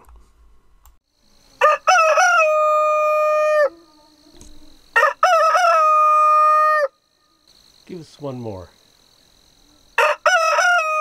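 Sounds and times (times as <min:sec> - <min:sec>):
rooster crowing: 0:01.6 - 0:04.0, 0:04.9 - 0:07.0, 0:10.0 - 0:11.0.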